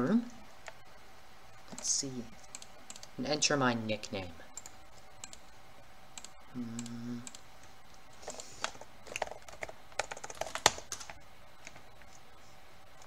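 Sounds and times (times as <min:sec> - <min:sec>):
computer keyboard typing: 0:01.7 - 0:03.2, 0:04.6 - 0:05.5, 0:06.2 - 0:07.4, 0:08.2 - 0:11.8.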